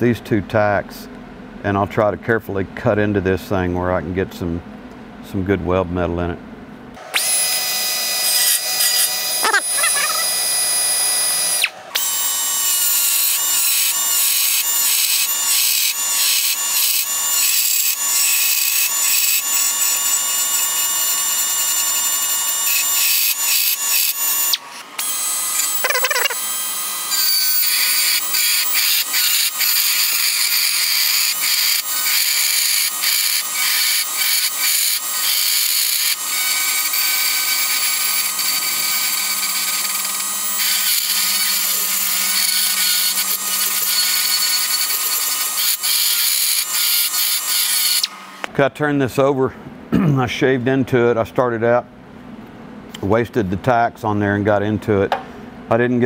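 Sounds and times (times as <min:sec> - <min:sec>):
die grinder high-pitched whine: 0:07.0 - 0:48.5.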